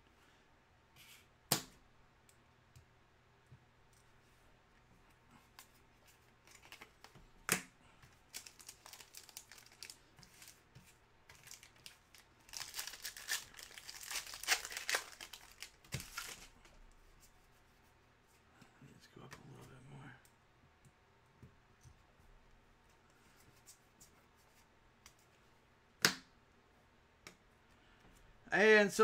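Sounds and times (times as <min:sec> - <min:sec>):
foil wrapper crinkling and tearing: 0:08.3 - 0:10.6, 0:11.3 - 0:16.6.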